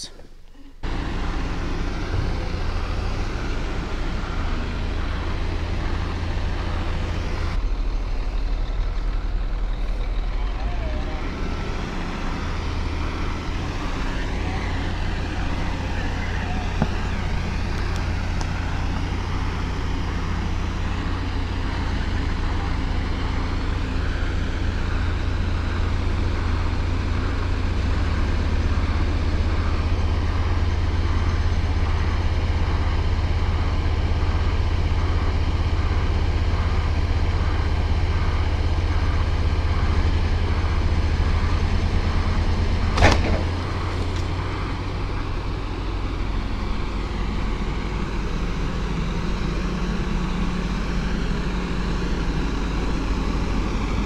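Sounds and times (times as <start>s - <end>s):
heavy diesel machinery rumbling: 0.0s - 54.0s.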